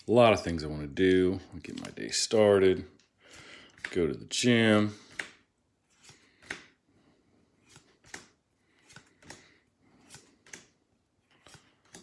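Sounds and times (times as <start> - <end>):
trading cards snapping and sliding: 3.7 - 4.0, 5.0 - 6.8, 7.6 - 12.0.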